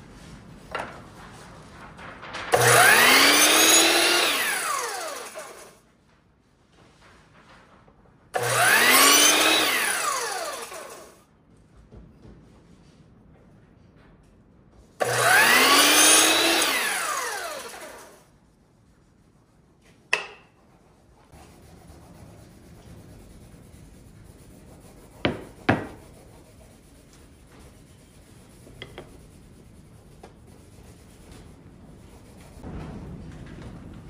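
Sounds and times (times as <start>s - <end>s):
miter saw whining and cutting: 2.5s - 5.8s, 8.4s - 11.2s, 15.0s - 18.2s.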